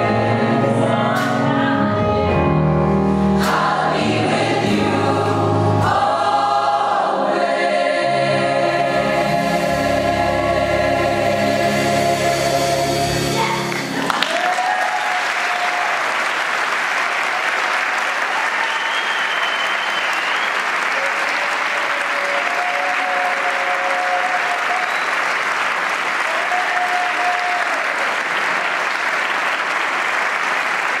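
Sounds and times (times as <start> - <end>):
crowd calling out: 13.4 - 16.2
audience applauding: 13.5 - 31.0.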